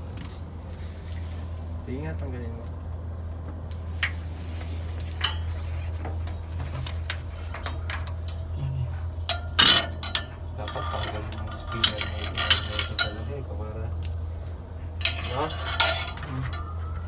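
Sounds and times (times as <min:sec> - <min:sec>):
steady low hum: 0:00.0 - 0:17.0
metal probe clinking on fan blades: 0:04.9 - 0:17.0.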